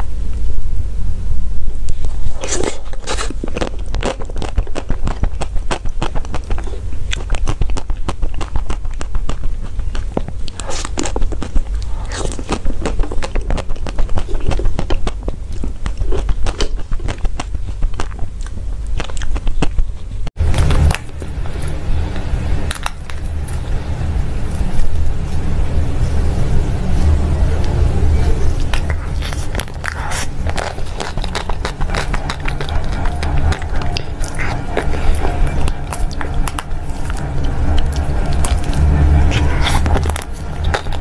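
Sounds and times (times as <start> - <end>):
low steady rumble: 0.0 - 41.0
crisp chewing and biting: 1.9 - 25.6, 27.6 - 41.0.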